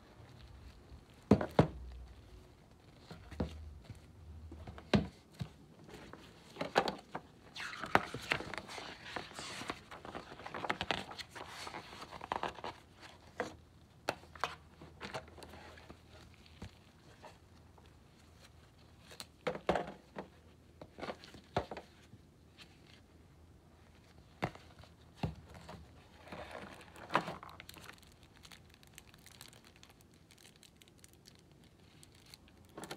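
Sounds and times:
pages being leafed through: 0:07.5 - 0:13.3
shrink-wrap crinkling: 0:26.2 - 0:32.9.

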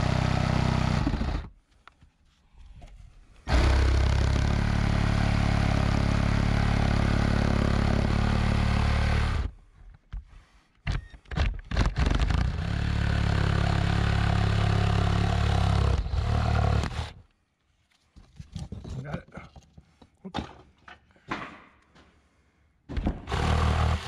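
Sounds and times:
power tool motor running: 0:00.0 - 0:01.5, 0:03.5 - 0:09.5, 0:12.2 - 0:17.2, 0:23.3 - 0:24.0.

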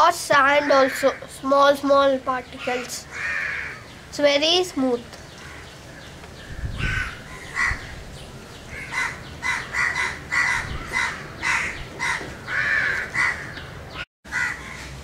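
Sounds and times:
crows cawing: 0:00.4 - 0:01.3, 0:02.6 - 0:03.9, 0:05.3 - 0:08.0, 0:08.7 - 0:15.0.

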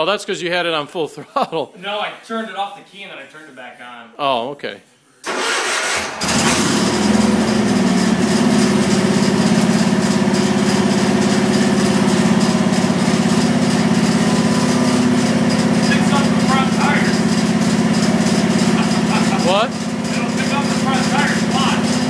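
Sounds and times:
tractor engine starting: 0:05.2 - 0:22.0.

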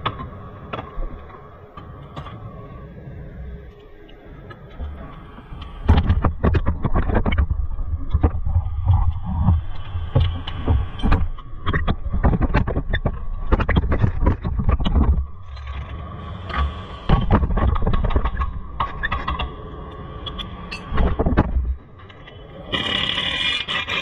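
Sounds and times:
irregular knocks and clatters: 0:05.9 - 0:15.9, 0:16.5 - 0:19.6, 0:20.9 - 0:22.2.

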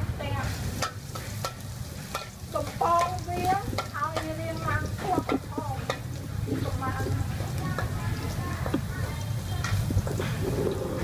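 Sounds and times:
food sizzling in oil: 0:00.0 - 0:11.0
metal spatula scraping wok: 0:00.3 - 0:11.0.

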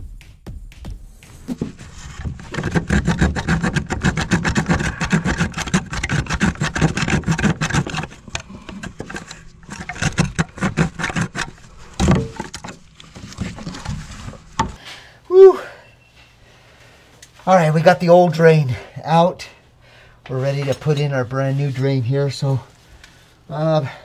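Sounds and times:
hand saw cutting plastic pipe: 0:01.5 - 0:14.8.

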